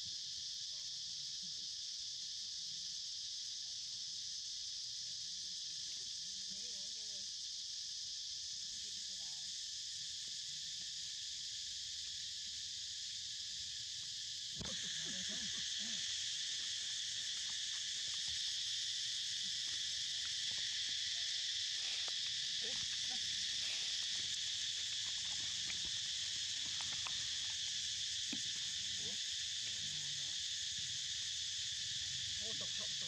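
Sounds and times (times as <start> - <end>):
high-pitched insect chorus: 0.0 - 33.0
faint ticks and rustles: 21.8 - 28.5.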